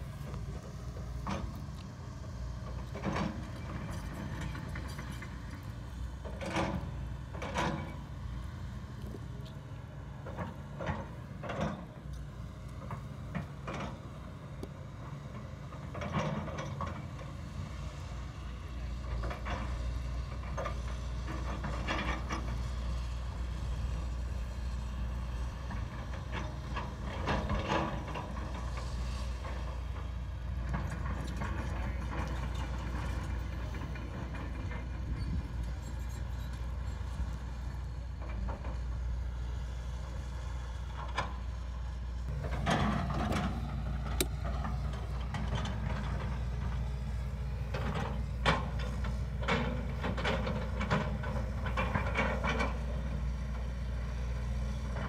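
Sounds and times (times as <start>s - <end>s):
excavator diesel engine droning: 0.0s - 55.0s.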